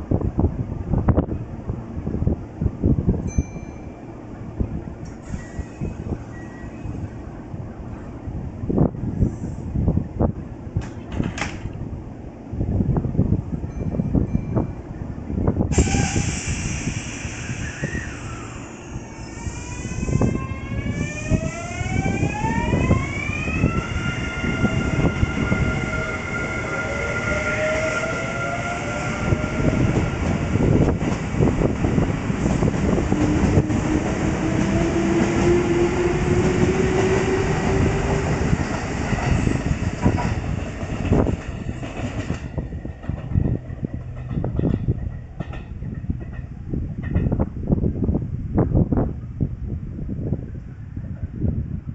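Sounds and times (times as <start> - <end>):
electric train inverter whine: 0.0 - 51.9
train motor hum: 16.9 - 49.7
wheels clacking over rail joints: 38.7 - 47.5.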